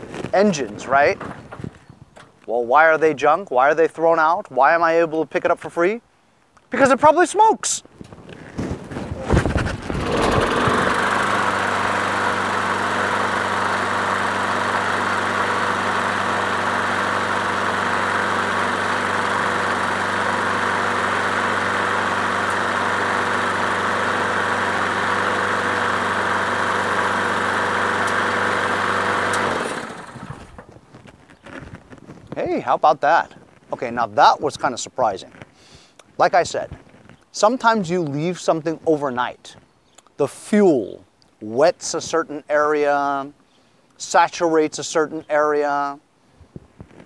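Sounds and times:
lawn mower engine running: 8.3s - 32.0s
pull starter: 8.7s - 30.8s.

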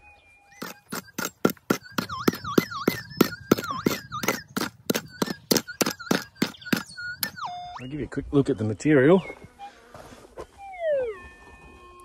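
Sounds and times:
digging into gravelly ground: 0.5s - 7.4s
metal detector tone warbling: 0.5s - 8.1s, 10.5s - 12.0s.

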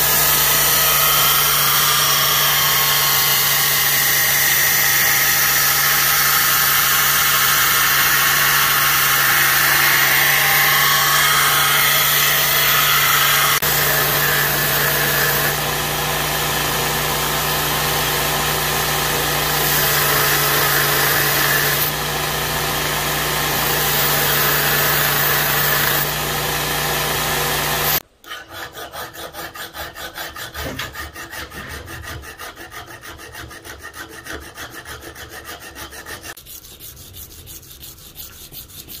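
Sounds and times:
hand file scraping metal: 0.0s - 16.3s, 27.8s - 39.0s
grinder motor hum: 6.4s - 28.0s.

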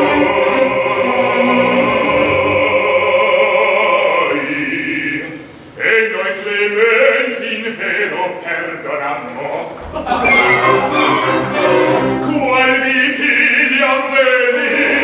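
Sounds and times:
orchestra playing: 0.0s - 3.0s, 9.8s - 13.1s
man singing opera: 0.0s - 11.2s, 12.1s - 15.0s.

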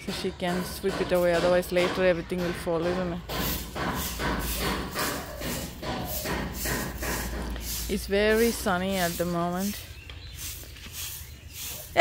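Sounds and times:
stick broom sweeping dry leaves: 3.4s - 12.0s.

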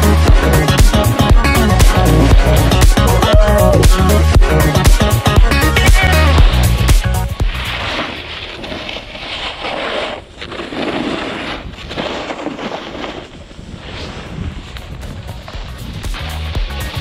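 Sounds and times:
snowboard sliding through snow: 0.0s - 17.0s
wind buffeting microphone: 11.4s - 16.2s.

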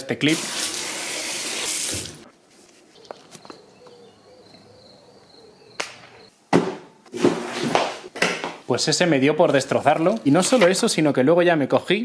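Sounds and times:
tap water running: 0.3s - 2.2s.

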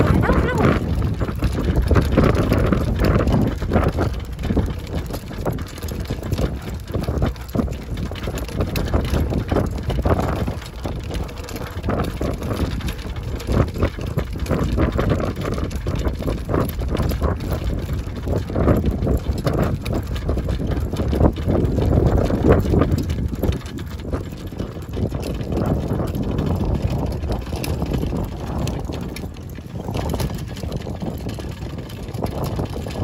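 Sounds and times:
cart frame rattling and knocking: 0.0s - 33.0s
cart wheels rumbling on pavement: 0.0s - 33.0s.

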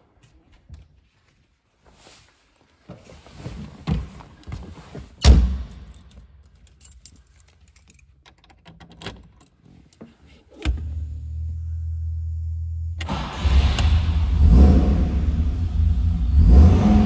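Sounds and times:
car keys jangling: 5.7s - 10.6s.

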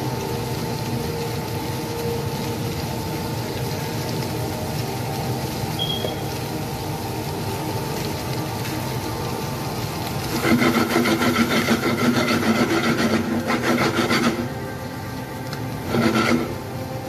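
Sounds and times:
steady frying hiss: 0.0s - 17.0s
spatula scraping potatoes in pan: 10.4s - 14.5s, 15.9s - 16.5s.

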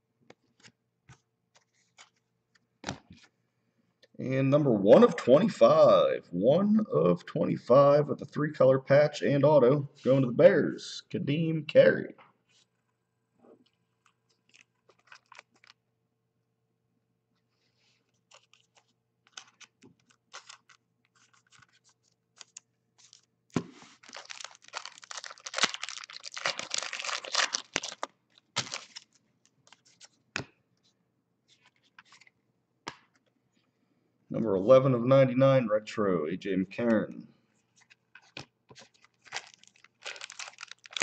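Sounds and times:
cards clicking and rustling: 14.0s - 15.8s, 18.2s - 30.5s, 37.8s - 41.0s
foil pack tearing: 24.0s - 29.0s, 39.1s - 41.0s.

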